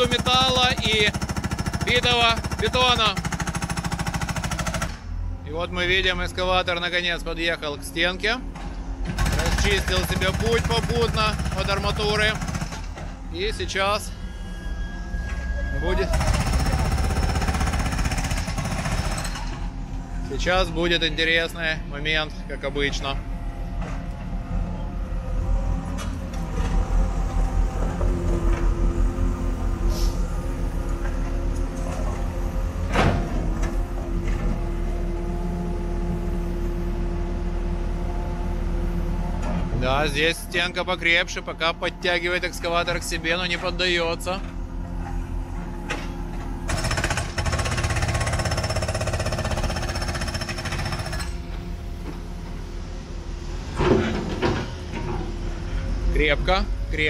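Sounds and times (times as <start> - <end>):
demolition hammer pounding: 0.0 - 5.2, 8.5 - 13.3, 16.0 - 19.8, 46.6 - 51.4
excavator diesel engine under load: 15.4 - 57.0.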